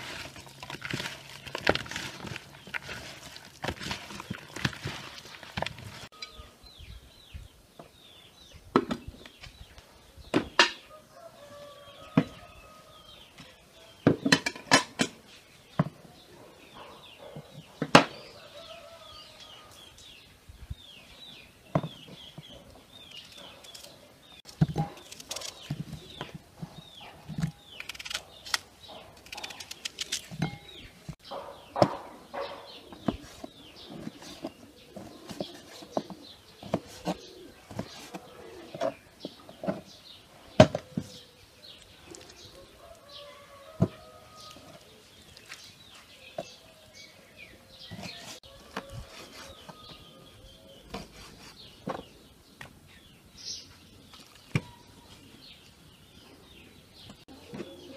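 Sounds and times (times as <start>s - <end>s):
birds chirping: 0.5s - 57.9s.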